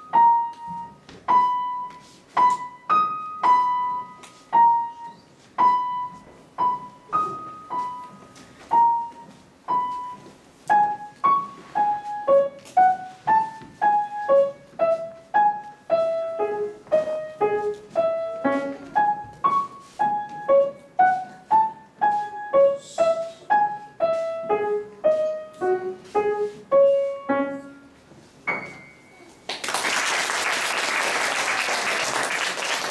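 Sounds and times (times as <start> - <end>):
piano melody: 0.0 - 29.4
applause: 29.4 - 32.9.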